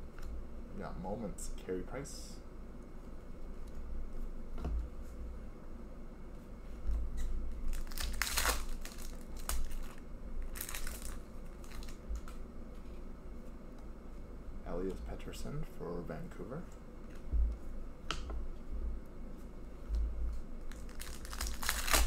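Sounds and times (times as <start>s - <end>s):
plastic wrapper crinkling: 7.2s - 12.4s, 20.6s - 22.0s.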